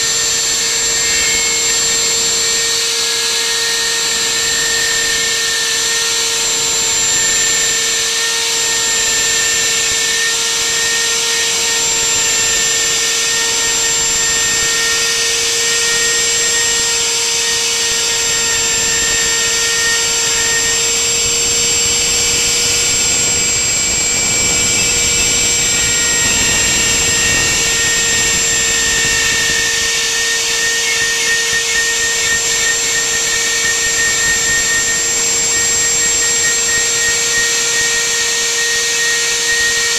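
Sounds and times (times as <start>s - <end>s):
bit cutting into wood: 0.0s - 39.9s
router spindle high whine: 0.0s - 39.9s.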